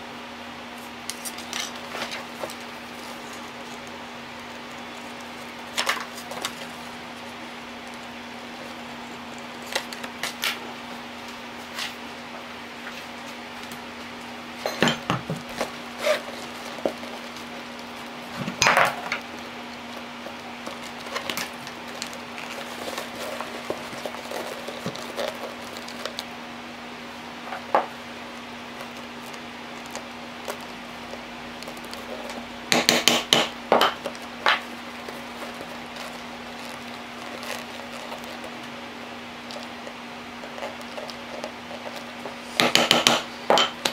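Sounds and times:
steady low hum: 0.0 - 43.9.

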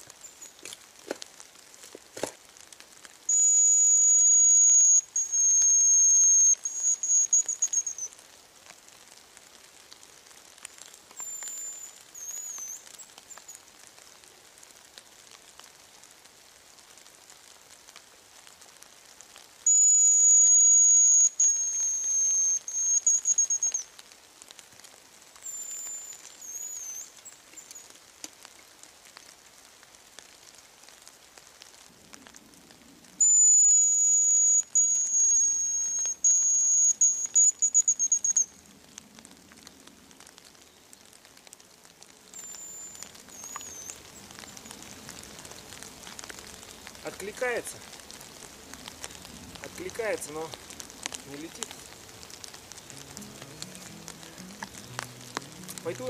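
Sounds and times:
bird answering whistle: 3.3 - 8.1, 11.2 - 12.8, 19.6 - 23.8, 25.4 - 27.1, 33.2 - 38.5, 42.4 - 44.0
decoy whistle call: 3.3 - 8.1, 11.2 - 12.8, 19.6 - 23.9, 25.4 - 27.7, 33.2 - 38.6, 42.4 - 44.0.

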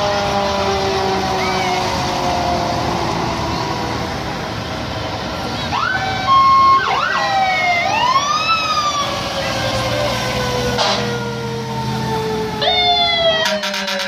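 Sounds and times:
fire truck sirens wailing: 0.0 - 14.0.

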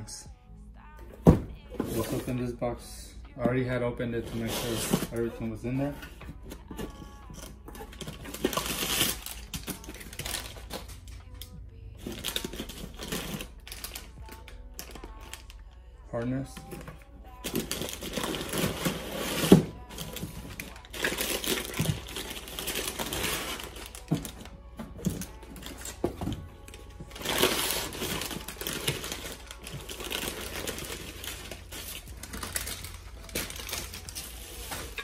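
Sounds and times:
packing paper rustling: 4.2 - 11.2, 12.0 - 15.5, 16.6 - 35.0
plastic bag crinkling: 17.4 - 24.4, 27.1 - 35.0.

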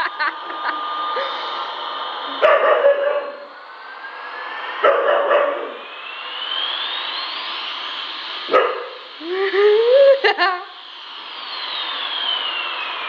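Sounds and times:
toy airplane electronic whine: 0.0 - 13.0
puppy barking: 2.4 - 3.4, 8.5 - 8.9.

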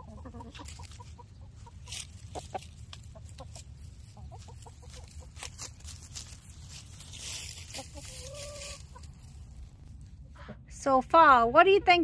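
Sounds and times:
rustling in dry leaves: 0.0 - 10.2
chickens clucking: 0.0 - 10.6.

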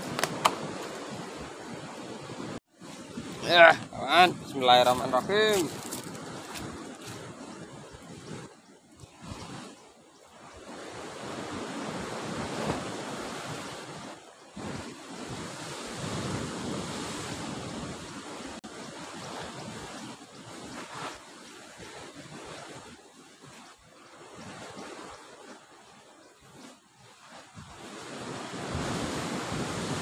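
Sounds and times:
surf breaking on shore: 0.0 - 8.5, 26.7 - 30.0
wind on microphone: 0.0 - 21.2, 27.4 - 30.0.

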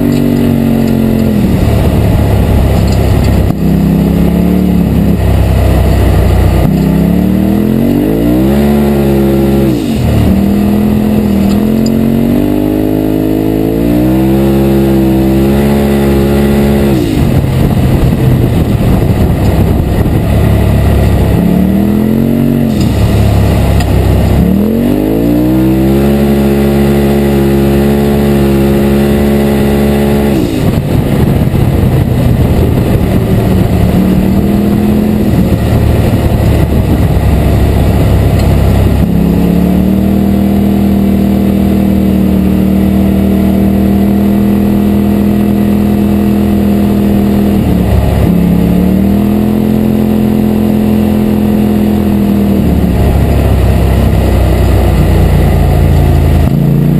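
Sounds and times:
engine revving under throttle: 0.0 - 56.9.

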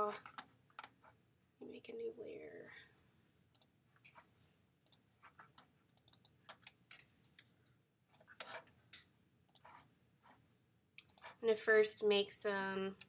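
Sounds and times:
mouse and keyboard clicks: 4.9 - 7.5, 11.0 - 11.4.

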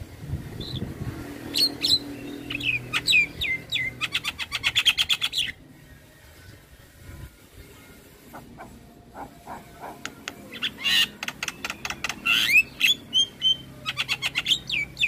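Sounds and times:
bird whistling and rattling song: 1.5 - 5.6, 8.3 - 15.0.

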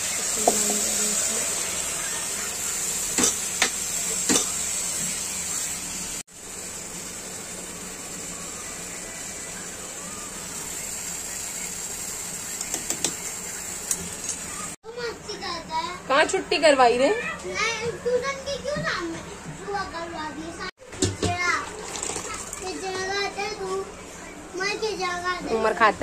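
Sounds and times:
meat frying in oil: 0.0 - 14.8, 21.4 - 23.2.

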